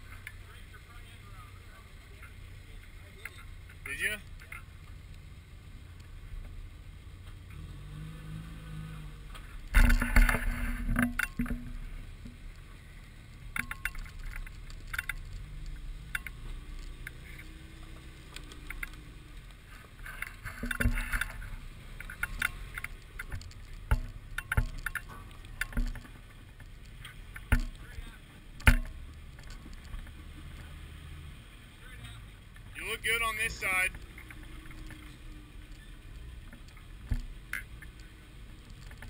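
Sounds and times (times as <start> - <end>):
low engine rumble: 0.0 - 39.0
tyres clunking over rocks: 9.3 - 30.9.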